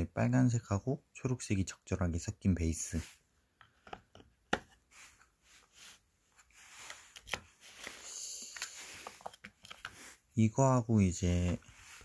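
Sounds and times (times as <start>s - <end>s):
soft rustle: 4.8s - 10.3s, 11.4s - 12.0s.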